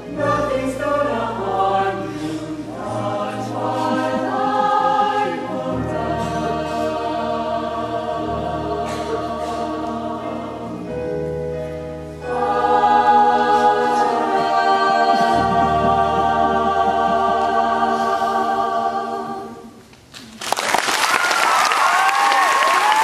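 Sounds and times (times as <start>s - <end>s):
choir holding a chord: 0.0s - 19.8s
audience applause: 20.3s - 23.0s
whoops and cheers: 21.0s - 23.0s.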